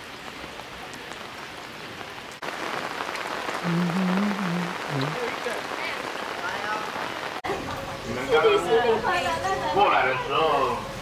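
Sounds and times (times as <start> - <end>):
rain falling: 0.0 - 11.0
man's low voice: 3.6 - 5.4.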